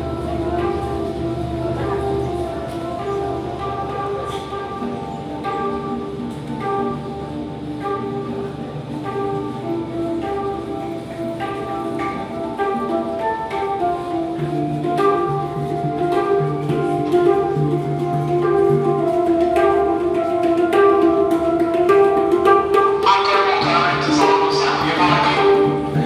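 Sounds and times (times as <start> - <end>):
light percussion: 0.0 - 26.0
melody of held notes: 0.0 - 26.0.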